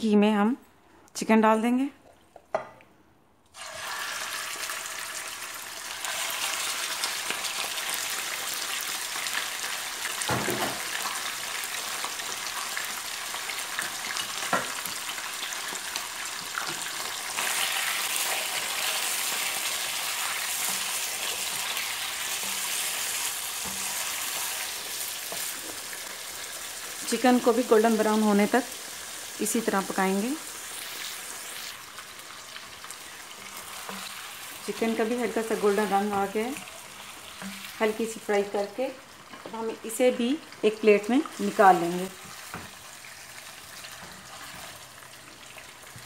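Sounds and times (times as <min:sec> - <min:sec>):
chicken sizzling in hot fat: 0:03.5 - 0:46.0
spatula stirring food: 0:13.3 - 0:26.8, 0:30.7 - 0:37.9, 0:41.2 - 0:46.0.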